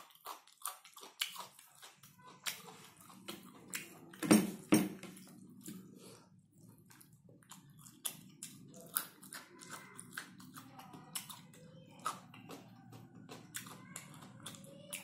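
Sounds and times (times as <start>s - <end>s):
person chewing with wet smacks: 0.0s - 4.2s, 5.0s - 15.0s.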